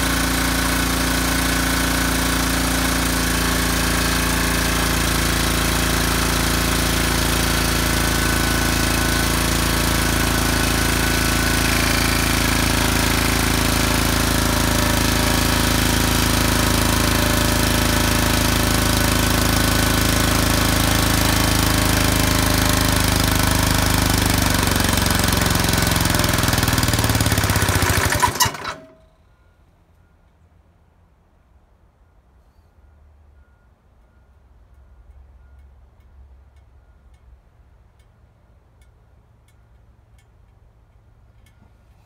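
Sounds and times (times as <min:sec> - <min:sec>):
small engine running: 0:00.0 - 0:29.0.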